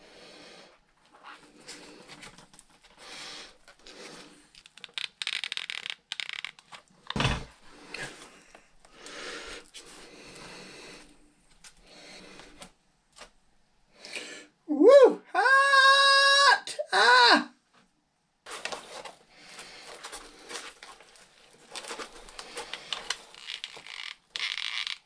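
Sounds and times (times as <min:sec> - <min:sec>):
crackling: 0:19.6 - 0:25.0
foam pieces rustling and scraping: 0:19.8 - 0:25.0.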